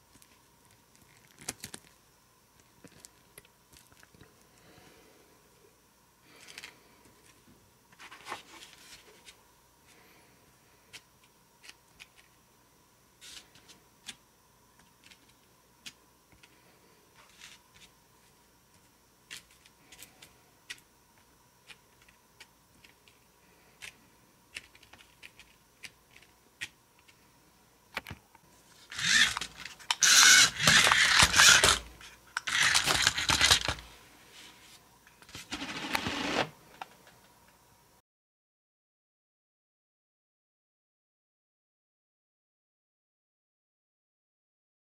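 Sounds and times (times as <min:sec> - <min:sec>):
toy car driving: 0:28.9 - 0:33.8
toy figures knocked over: 0:28.9 - 0:33.8.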